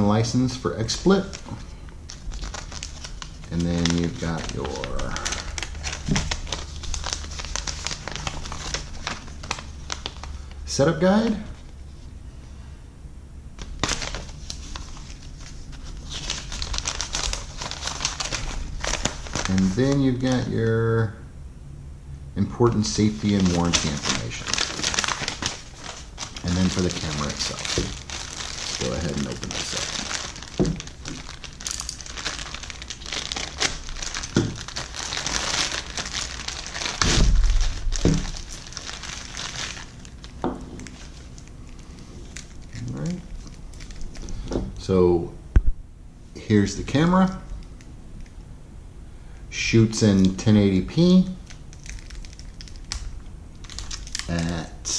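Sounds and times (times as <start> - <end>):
paper leaflets rustling: 0.8 - 11.4, 13.6 - 20.5, 22.7 - 44.5
plastic bag crinkling: 0.8 - 11.6, 13.6 - 20.6, 22.7 - 44.7, 50.1 - 54.6
sharp paper crackles: 0.9 - 10.6, 13.6 - 20.5, 22.9 - 44.4, 51.4 - 54.5.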